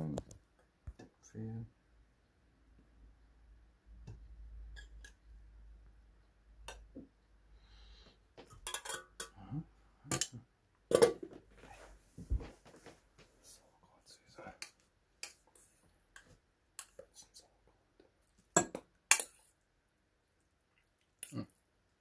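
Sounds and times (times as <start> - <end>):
cutlery clinking on plates: 8.5 - 9.3.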